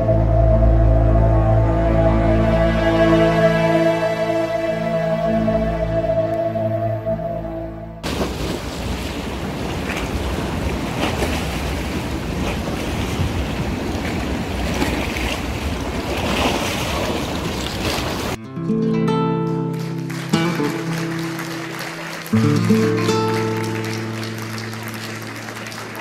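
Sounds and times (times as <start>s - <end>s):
sea surf rushing: 8.0s - 18.4s, 19.8s - 26.0s
acoustic guitar music: 18.4s - 26.0s.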